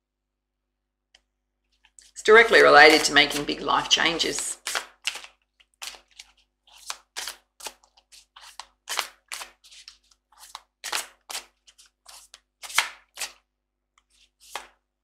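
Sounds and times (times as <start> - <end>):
cards being shuffled: 2.8 - 13.4, 14.0 - 14.8.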